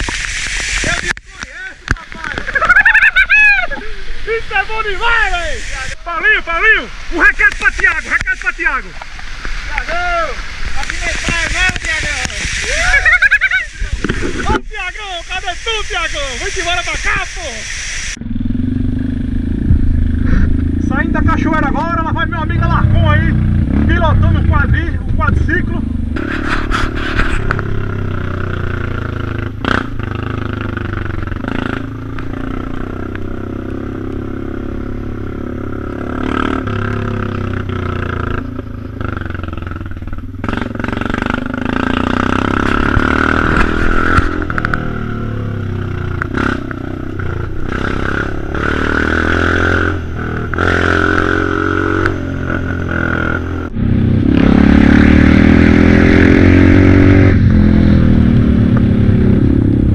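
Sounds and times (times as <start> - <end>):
quad bike engine revving: 18.2 - 59.9.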